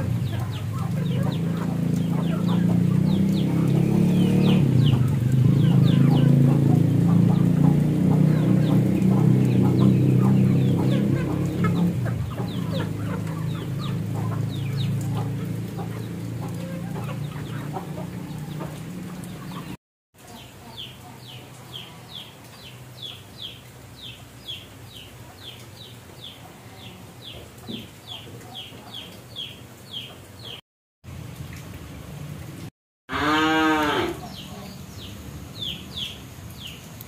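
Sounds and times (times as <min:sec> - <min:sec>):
chickens clucking: 0:00.0 - 0:30.6, 0:33.8 - 0:36.2.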